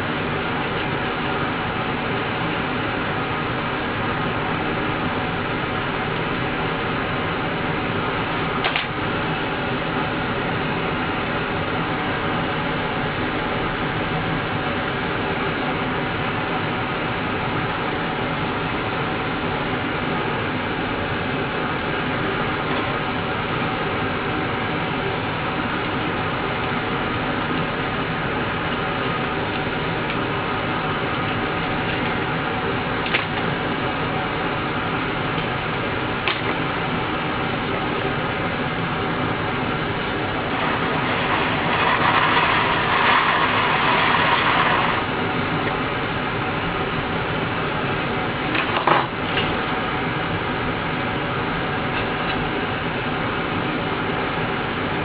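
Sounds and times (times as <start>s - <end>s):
steady mechanical hum: 0.0s - 55.0s
foam being scraped by hand: 40.5s - 45.1s.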